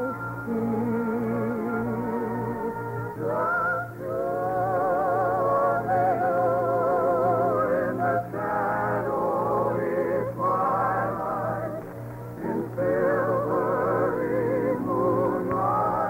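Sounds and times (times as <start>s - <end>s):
person singing love ballad: 0.0s - 16.0s.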